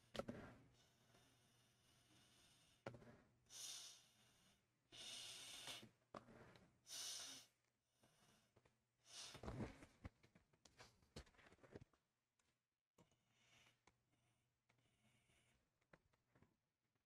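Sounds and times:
breath puffs through a straw: 0:03.5 - 0:06.0, 0:06.9 - 0:07.6, 0:09.0 - 0:09.7.

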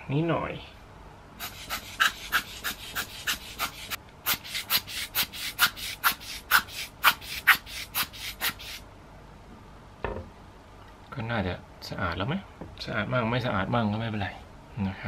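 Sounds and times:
quick hissing air strokes: 0:01.4 - 0:08.8.

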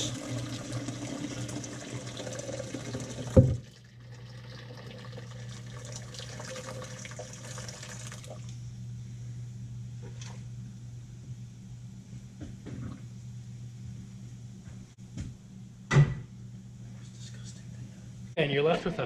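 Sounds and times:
liquid pouring and splashing: 0:00.0 - 0:08.5
steady low hum: 0:07.9 - 0:19.0.

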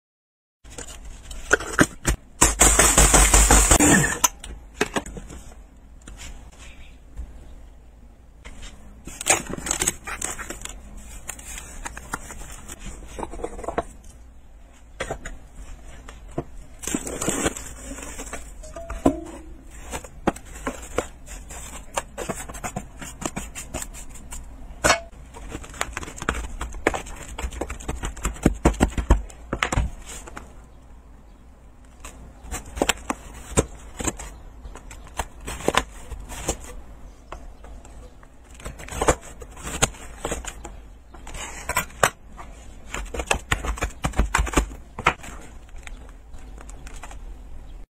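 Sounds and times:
metal scraper crunching ice: 0:02.4 - 0:04.3.

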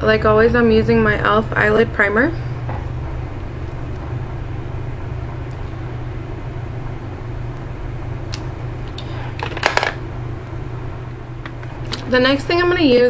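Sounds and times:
steady low hum: 0:00.0 - 0:13.0
handling noise clatter: 0:09.3 - 0:10.0.

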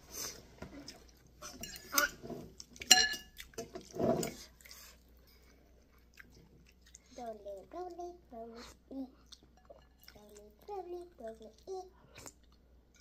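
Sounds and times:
spoon clinking against ceramic bowl: 0:01.6 - 0:02.0, 0:02.9 - 0:03.4.

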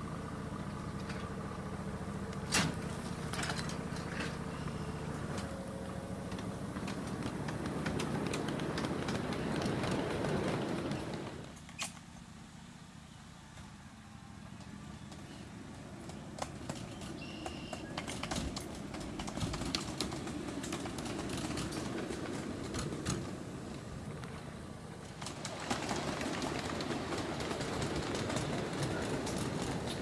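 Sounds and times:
freight cars rumbling on track: 0:00.0 - 0:30.0
wheels and couplers clicking: 0:00.5 - 0:12.2, 0:14.5 - 0:30.0
bird chirping: 0:16.0 - 0:18.1.

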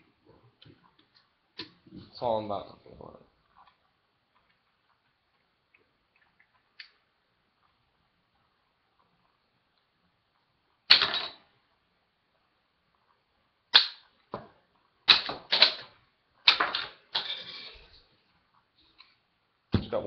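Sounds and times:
toy gun plastic snaps: 0:15.1 - 0:15.9.

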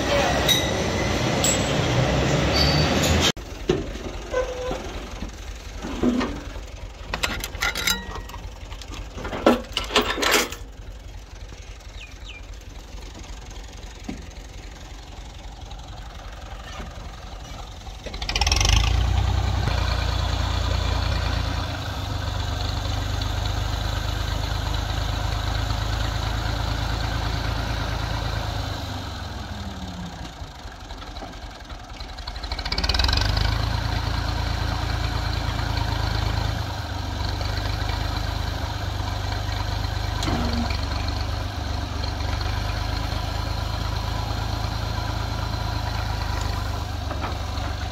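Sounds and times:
tractor diesel engine running: 0:00.0 - 0:47.9
metal clanks of trailer tailgate: 0:05.8 - 0:10.7.

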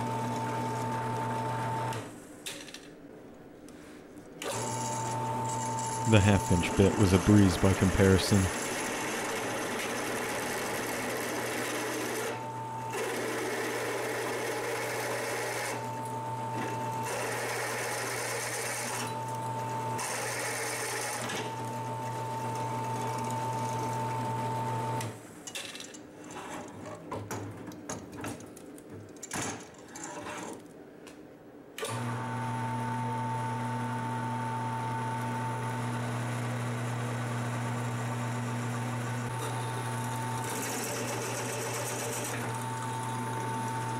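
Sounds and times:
drill press boring through steel: 0:39.4 - 0:43.9.

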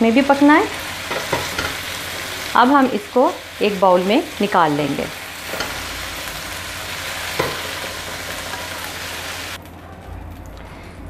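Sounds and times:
chicken sizzling in oil: 0:00.0 - 0:09.6
spatula stirring in wok: 0:00.8 - 0:02.6, 0:04.3 - 0:09.6.

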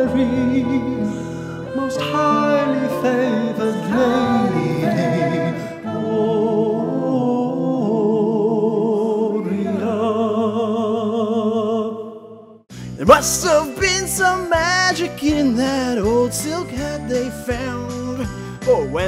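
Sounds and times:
instrumental backing music: 0:00.0 - 0:07.3, 0:12.7 - 0:19.0
person singing a christmas carol: 0:00.0 - 0:19.0.

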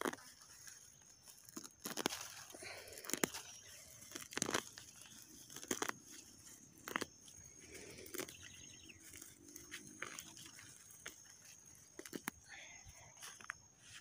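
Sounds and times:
footsteps crunching on mulch: 0:00.0 - 0:14.0.

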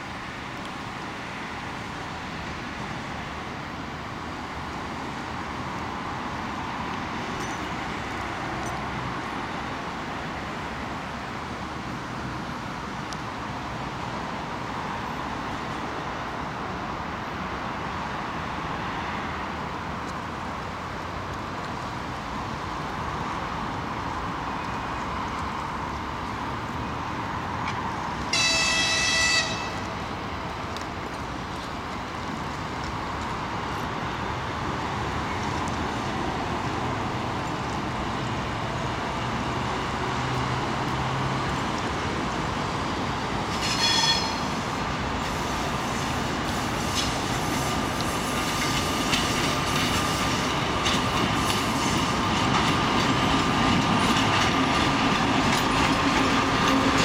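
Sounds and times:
diesel locomotive engine: 0:00.0 - 0:57.0
train horn: 0:28.3 - 0:29.9, 0:43.6 - 0:44.6.

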